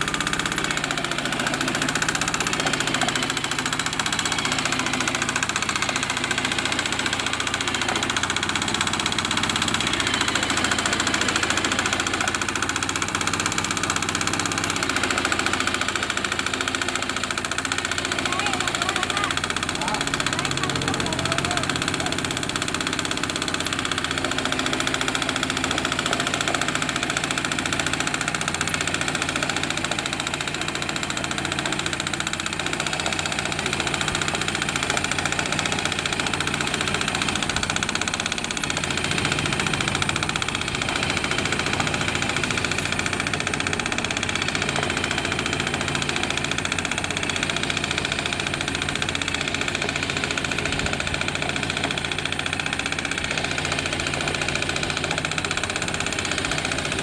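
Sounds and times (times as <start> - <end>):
hand tractor engine running: 0.0 - 57.0.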